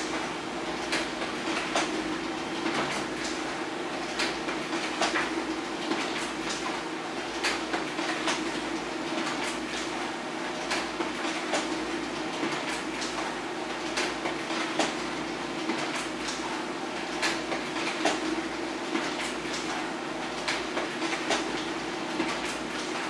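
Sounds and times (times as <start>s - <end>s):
paper feed clicks and rattles: 7.3s - 15.0s, 15.6s - 23.0s.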